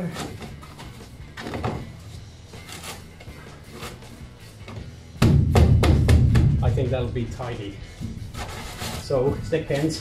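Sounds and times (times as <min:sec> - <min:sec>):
music with drum beat: 0:05.1 - 0:07.0.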